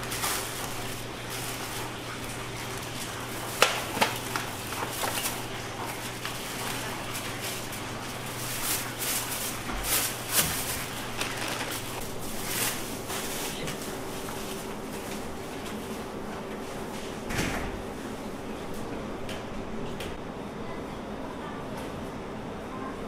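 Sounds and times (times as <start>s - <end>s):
plastic bags rustling: 0.0s - 15.3s.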